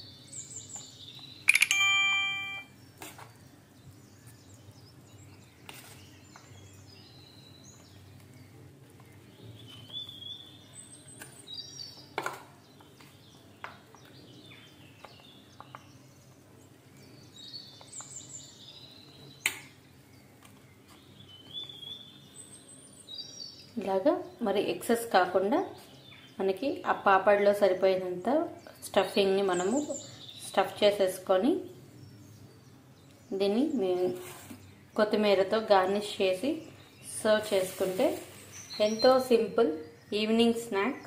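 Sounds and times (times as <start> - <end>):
birds chirping faintly: 0.0 - 41.0
sharp clicks: 1.5 - 1.9.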